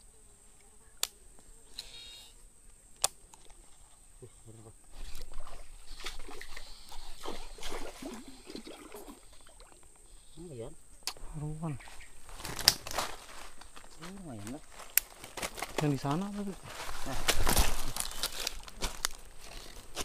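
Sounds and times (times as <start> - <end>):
water splashing and sloshing: 5.0 - 9.9.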